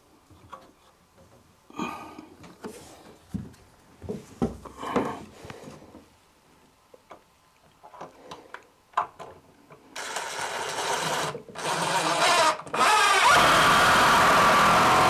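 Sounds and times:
power drill driving screw into wood: 10.0 - 15.0.

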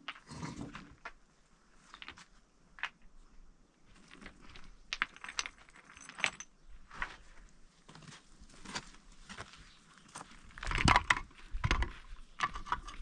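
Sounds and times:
stones clinking together: 3.9 - 7.1.

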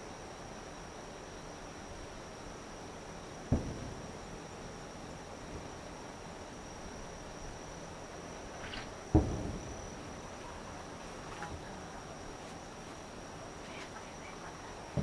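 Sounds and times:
high insect trill: 0.0 - 15.0
distant firework boom: 3.5 - 4.2, 9.1 - 10.0.

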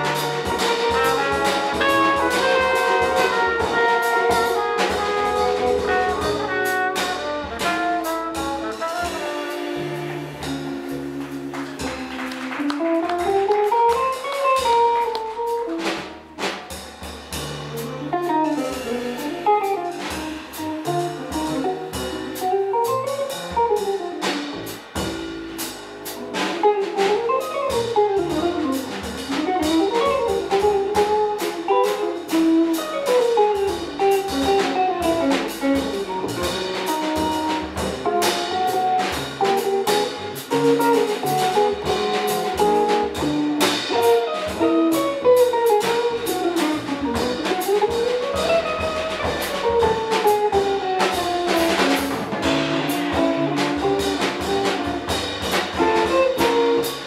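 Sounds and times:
held brass horn notes: 0.0 - 11.2
saxophone: 0.0 - 16.1
drum kit: 0.0 - 57.0
upright bass: 0.0 - 57.0.

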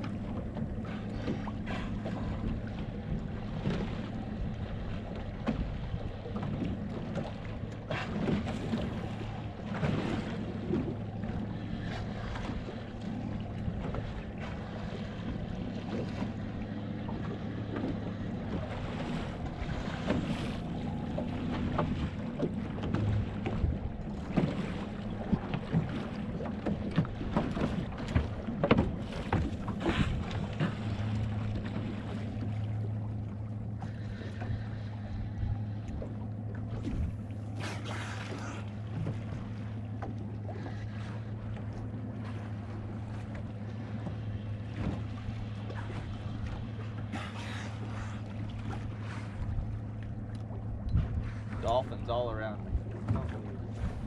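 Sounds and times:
outboard engine idling: 0.0 - 54.0
water splashing against hull: 0.0 - 54.0
wind on microphone: 50.8 - 51.9, 52.6 - 54.0.

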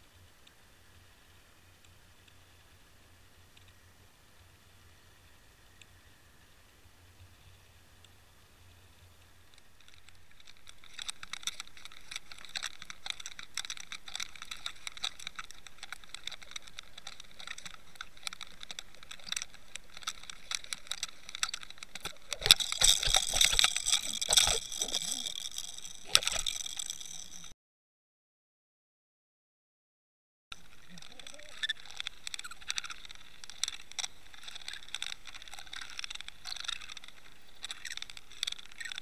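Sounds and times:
underwater clicks and ticks: 9.2 - 27.5, 30.5 - 39.0.

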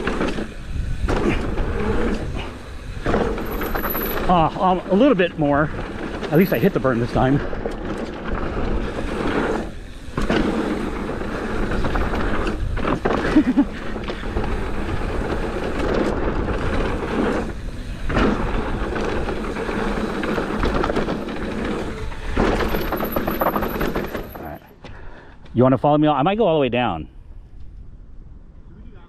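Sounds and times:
wind buffeting microphone: 0.0 - 3.6
tyres rumbling on dirt: 0.0 - 24.7
bike rattling: 0.0 - 25.2.

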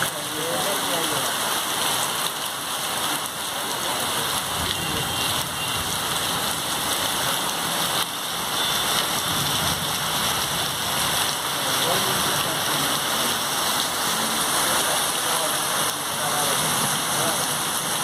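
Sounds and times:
heavy rain pouring: 0.0 - 18.0.

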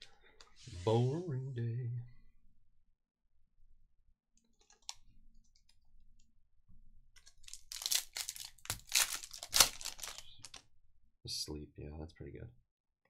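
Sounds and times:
foil wrapper crinkling: 7.2 - 10.6.

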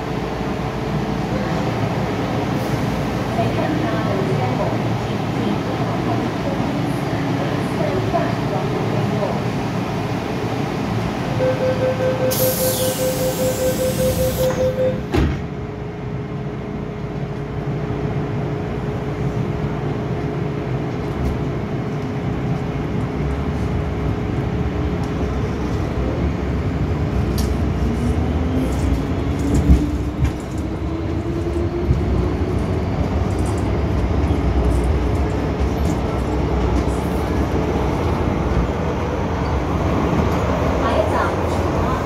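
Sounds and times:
rising train whine: 0.0 - 42.0
train running rumble: 12.7 - 42.0
train doors knocking shut: 14.4 - 15.5.

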